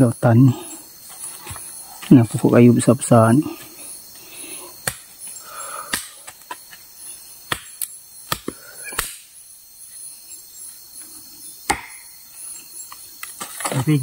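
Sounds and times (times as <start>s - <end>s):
forest insects chirping: 0.0s - 14.0s
sharp knocks: 11.7s - 12.0s.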